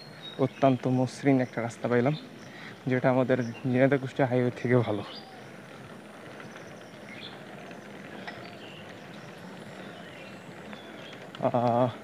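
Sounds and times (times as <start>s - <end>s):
bicycle rolling on road: 0.0s - 12.0s
faint clicks: 5.8s - 12.0s.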